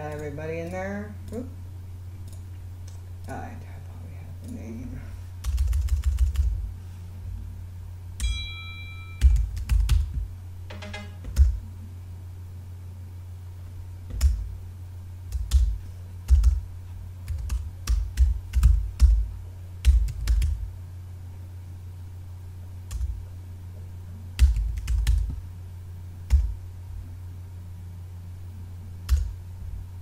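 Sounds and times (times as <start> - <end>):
low hum: 0.0 - 30.0
keyboard typing clicks: 2.2 - 3.4, 9.2 - 10.2
ringing electronic tone: 8.2 - 9.4.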